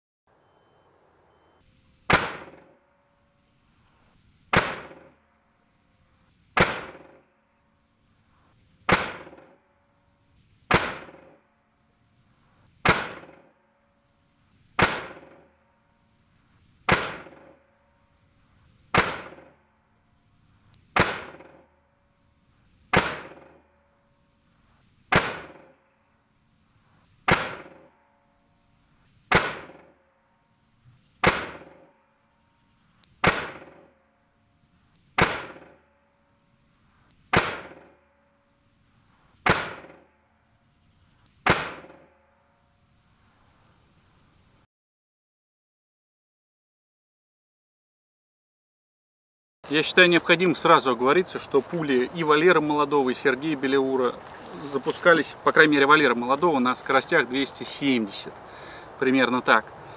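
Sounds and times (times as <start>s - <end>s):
air rifle shots: 2.1s - 2.8s, 4.5s - 5.2s, 6.6s - 7.3s, 8.9s - 9.6s, 10.7s - 11.4s, 12.8s - 13.5s, 14.8s - 15.4s, 16.9s - 17.6s, 18.9s - 19.6s, 20.9s - 21.7s, 22.9s - 23.6s, 25.1s - 25.8s, 27.3s - 27.9s, 29.3s - 29.9s, 31.2s - 31.9s, 33.2s - 33.9s, 35.2s - 35.8s, 37.3s - 38.0s, 39.4s - 40.1s, 41.4s - 42.1s.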